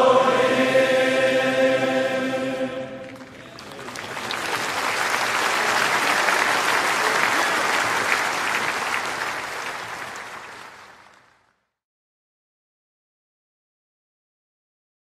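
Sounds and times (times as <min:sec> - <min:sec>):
crowd applauding: 0:03.0 - 0:11.6.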